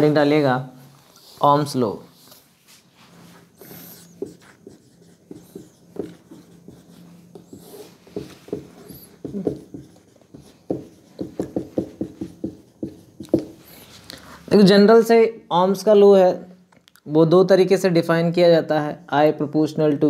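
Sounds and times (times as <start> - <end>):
whiteboard being wiped: 0.9 - 14.1
marker writing on whiteboard: 3.4 - 13.9.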